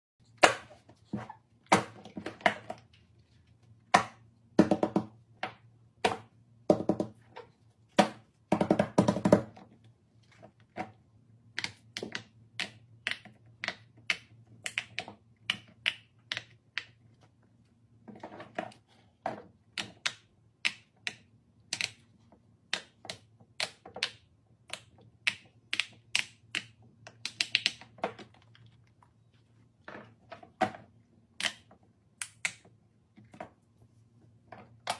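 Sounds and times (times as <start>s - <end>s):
silicone toys clicking and tapping: 11.5s - 17.0s, 19.7s - 28.6s, 31.4s - 32.8s.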